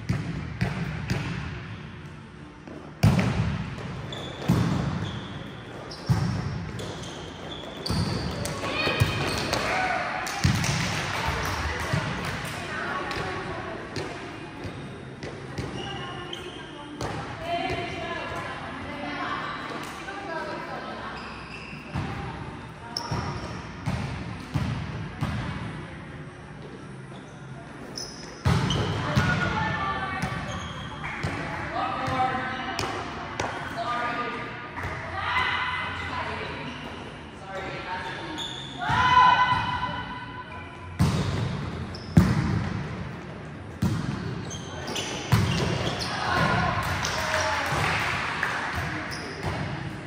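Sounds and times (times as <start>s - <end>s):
faint high squeaks: 38.0s - 38.8s.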